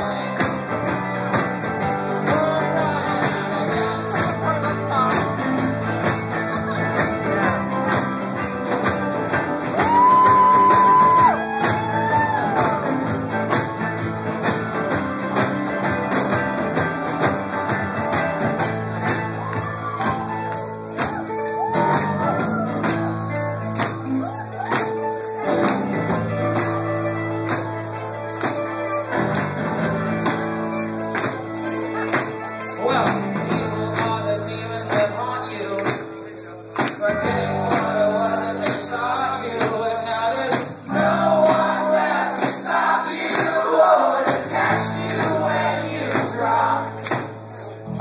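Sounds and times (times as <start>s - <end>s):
voices singing: 0.0s - 13.3s, 31.4s - 47.9s
folk-rock band playing: 0.0s - 48.0s
jingling percussion: 0.0s - 48.0s.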